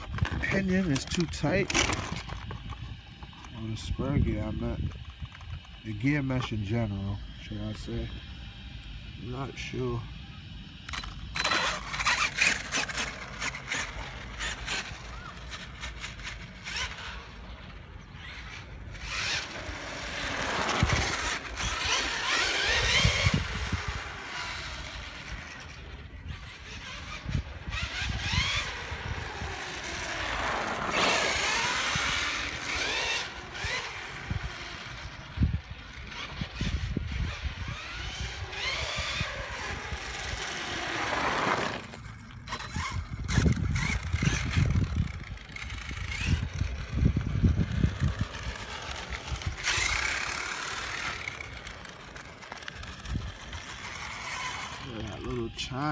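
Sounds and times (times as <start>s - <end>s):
toy truck electric motor whining: 0.0s - 55.9s.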